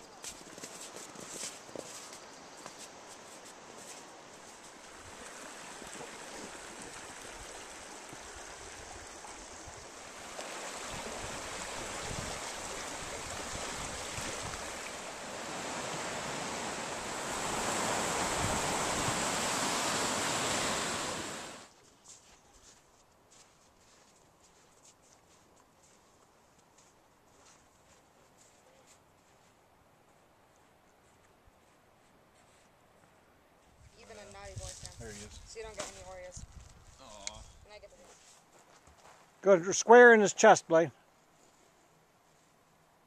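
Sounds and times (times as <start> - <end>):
rushing creek water: 3.7 - 21.7.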